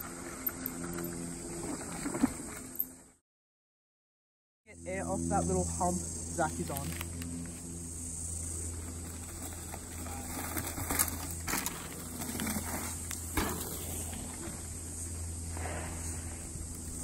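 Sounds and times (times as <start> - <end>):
bike tyres on dirt: 8.5 - 17.0
bike rattling and knocking: 8.8 - 14.6.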